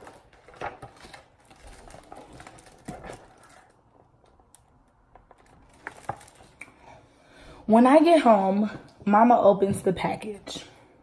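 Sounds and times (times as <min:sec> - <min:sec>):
book page turning: 0:00.0 - 0:03.8.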